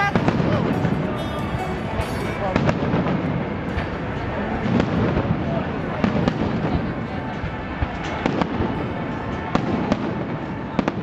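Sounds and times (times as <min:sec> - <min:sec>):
din of fireworks display: 0:00.0 - 0:11.0
fireworks bangs: 0:00.0 - 0:11.0.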